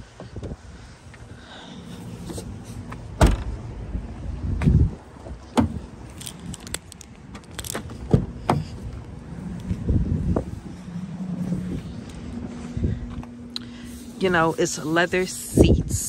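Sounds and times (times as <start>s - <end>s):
car door clicks and knocks: 3.2s - 3.5s, 5.5s - 5.8s
car liftgate banging shut: 3.2s - 3.5s.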